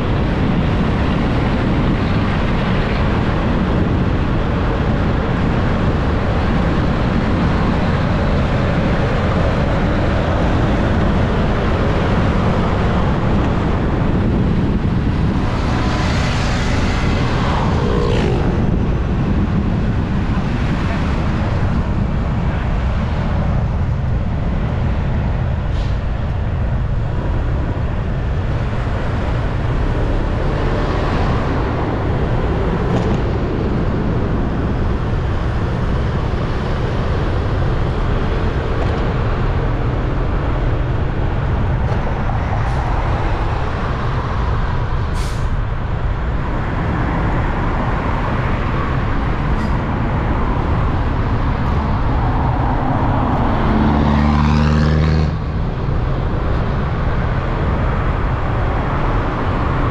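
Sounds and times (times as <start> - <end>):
wind noise: 0.0 - 59.9.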